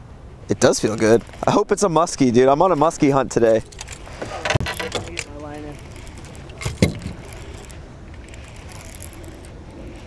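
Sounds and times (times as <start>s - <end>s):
wind and water noise: 0.0s - 10.0s
fishing reel being cranked: 4.7s - 10.0s.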